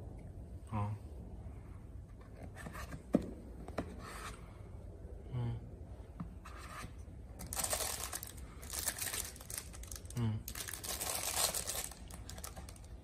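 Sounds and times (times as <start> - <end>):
plastic wrapping rustling: 7.4 - 13.0.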